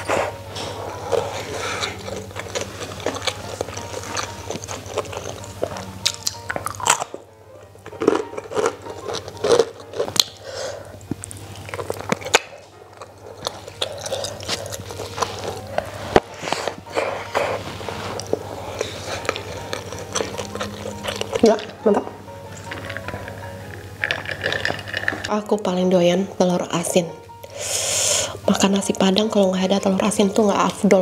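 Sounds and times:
close chewing with crunches: 0.0 - 21.9, 22.5 - 25.3.

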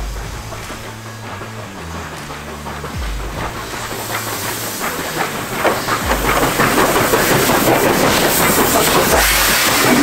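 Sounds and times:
deep low thuds: 0.0 - 3.9
steam locomotive clattering past: 0.0 - 10.0.

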